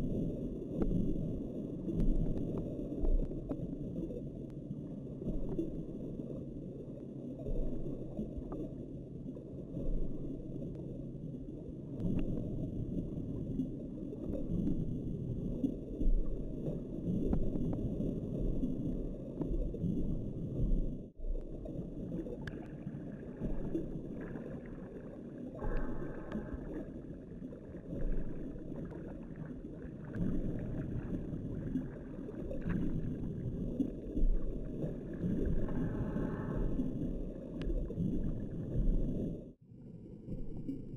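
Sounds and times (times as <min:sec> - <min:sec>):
underwater rumble and sloshing: 0:00.0 - 0:40.9
faint ticks: 0:00.7 - 0:01.0, 0:01.8 - 0:05.8, 0:12.0 - 0:14.8, 0:22.4 - 0:22.7.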